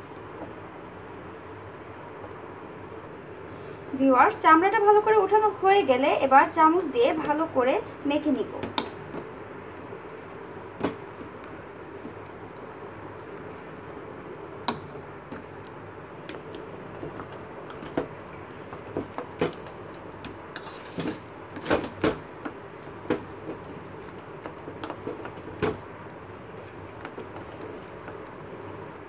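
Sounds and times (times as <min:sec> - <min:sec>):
spoon mashing in plastic bowl: 0:16.3 - 0:28.4.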